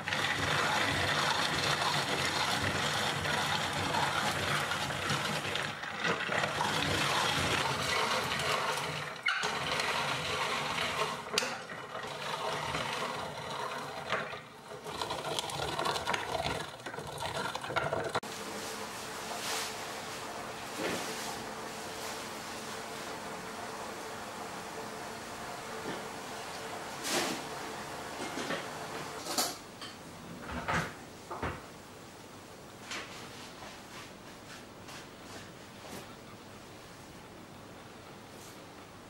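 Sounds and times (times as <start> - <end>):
hand-cranked grater rasping whir: 0.0 - 18.2.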